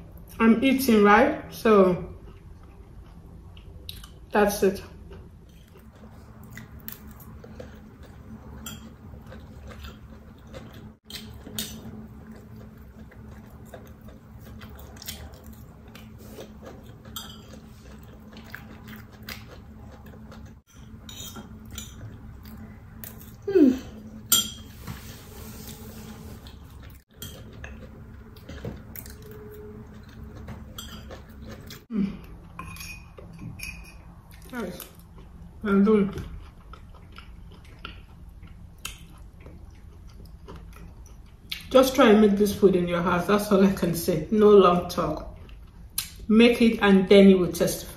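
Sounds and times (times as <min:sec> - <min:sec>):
steady low hum: 0:00.0 - 0:47.9
spoon clinking on a plate: 0:32.6 - 0:34.0.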